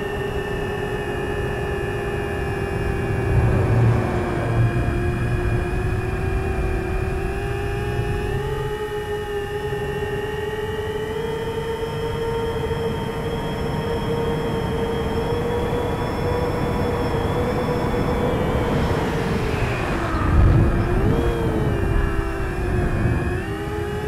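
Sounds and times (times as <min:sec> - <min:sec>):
drone propellers whining: 0:00.0 - 0:24.0
wind buffeting microphone: 0:01.4 - 0:09.7, 0:15.5 - 0:24.0.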